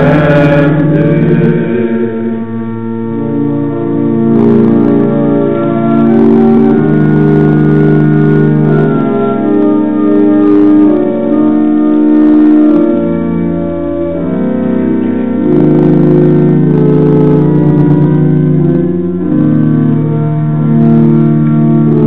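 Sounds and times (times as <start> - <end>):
church organ playing chords: 0.0 - 22.0.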